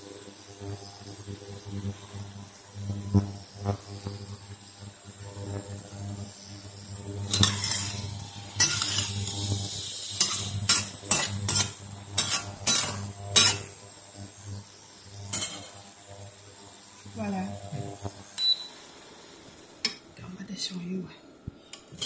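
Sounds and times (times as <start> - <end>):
steady low hum: 0.6 - 22.0
metal spatula scraping wok: 7.3 - 13.7, 15.3 - 15.7.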